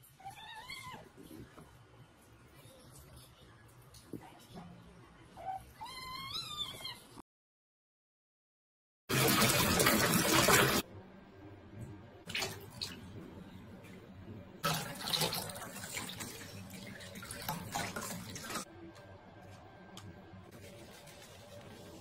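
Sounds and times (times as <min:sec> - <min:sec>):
tap water gushing into bathtub: 0:09.1 - 0:10.8, 0:14.6 - 0:18.7
water poured from jug splashing: 0:14.6 - 0:18.6.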